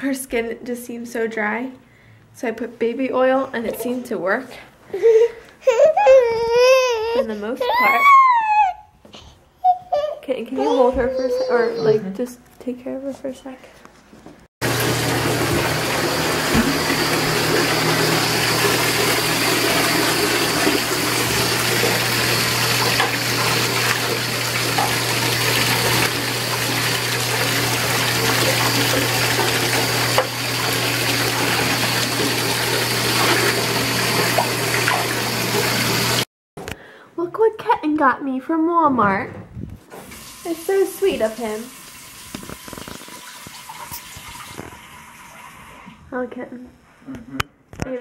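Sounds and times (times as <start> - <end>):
water running into bathtub: 14.6 - 36.3, 39.9 - 46.0.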